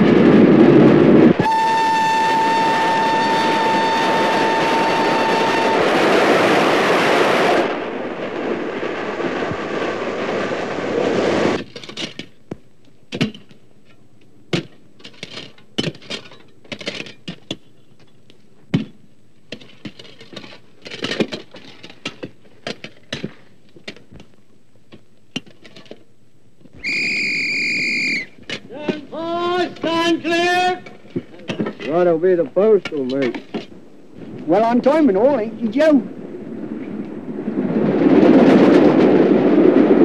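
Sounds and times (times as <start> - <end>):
steam train rumbling: 0.0 - 11.6.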